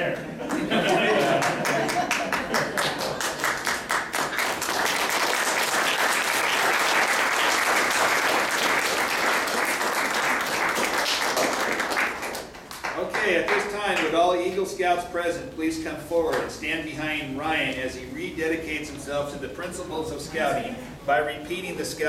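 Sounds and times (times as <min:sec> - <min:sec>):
audience applauding: 0:00.4 - 0:13.7.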